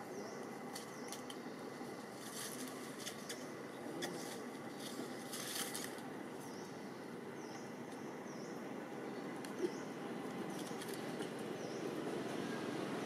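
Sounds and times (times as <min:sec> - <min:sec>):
faint outdoor background: 0:00.0 - 0:13.0
dry leaves crackling and rustling: 0:00.6 - 0:06.1.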